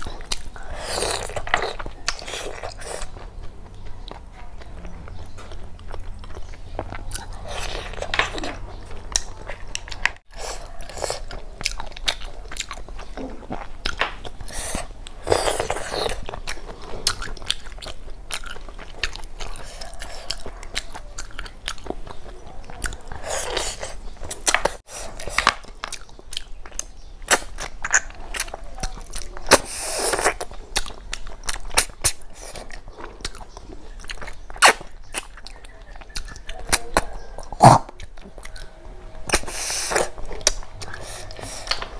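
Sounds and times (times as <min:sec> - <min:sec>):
wet chewing and mouth clicks: 0:00.0 - 0:41.9
slurping: 0:37.5 - 0:41.9.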